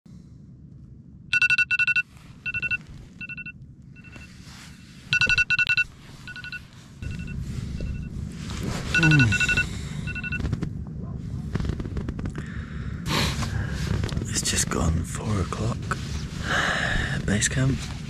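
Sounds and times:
phone alarm electronic beeps: 1.3 - 4.4, 5.1 - 8.1, 8.9 - 10.5.

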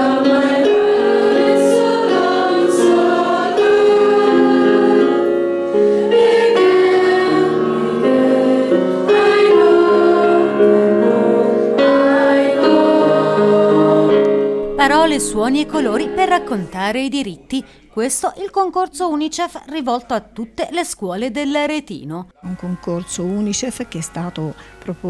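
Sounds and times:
children's choir singing: 0.0 - 16.8
electronic keyboard: 0.0 - 16.8.

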